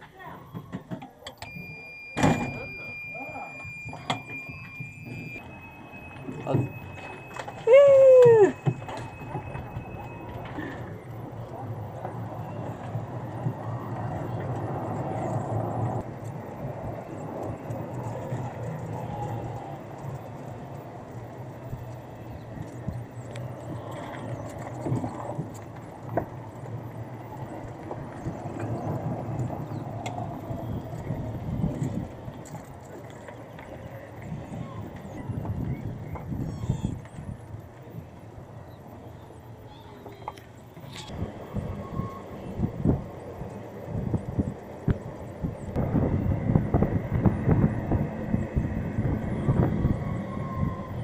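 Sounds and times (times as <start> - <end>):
vehicle rumbling on rough track: 0.0 - 51.0
faint high whine: 0.1 - 51.0
wind buffeting microphone: 8.0 - 38.9, 41.0 - 51.0.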